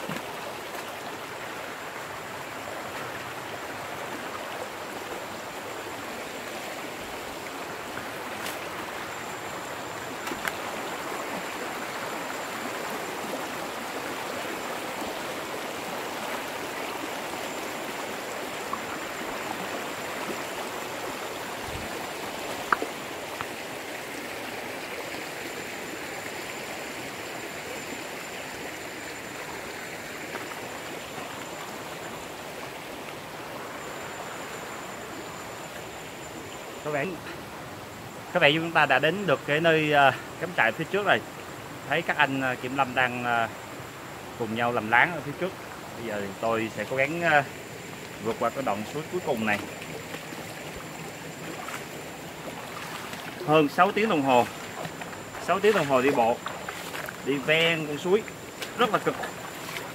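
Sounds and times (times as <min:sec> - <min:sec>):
stream rushing over stones: 0:00.0 - 0:59.9.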